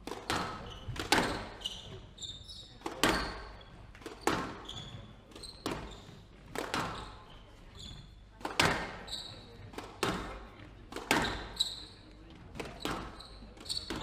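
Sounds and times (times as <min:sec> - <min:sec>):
squash ball cracking off rackets: 0:00.0 - 0:01.7, 0:02.8 - 0:04.7, 0:05.3 - 0:07.1, 0:08.4 - 0:11.7, 0:12.5 - 0:14.0
shoes squeaking on wooden floor: 0:00.3 - 0:10.2, 0:11.1 - 0:14.0.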